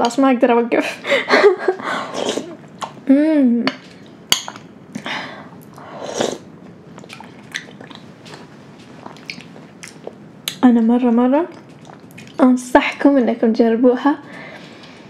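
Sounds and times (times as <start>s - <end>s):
sipping and chewing: 5.6s - 10.6s, 11.5s - 12.4s.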